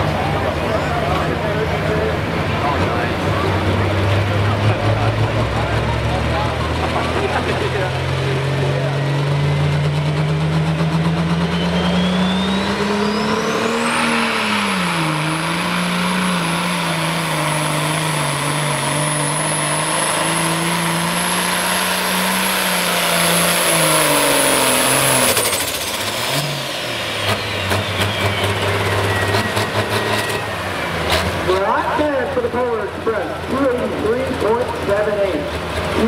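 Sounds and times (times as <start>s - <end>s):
diesel engine revving: 0.0s - 36.0s
engine crackles: 0.0s - 36.0s
turbo whine: 10.7s - 19.8s.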